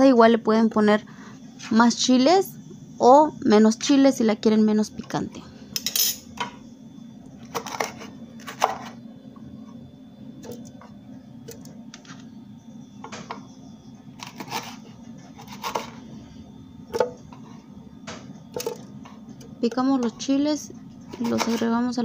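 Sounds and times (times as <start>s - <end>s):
steady low hum: 0.0s - 22.0s
knife chopping on wooden board: 15.4s - 16.0s.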